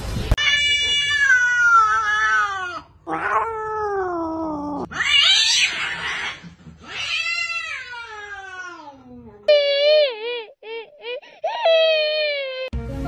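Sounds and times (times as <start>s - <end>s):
cat yowling: 0.4s - 8.9s.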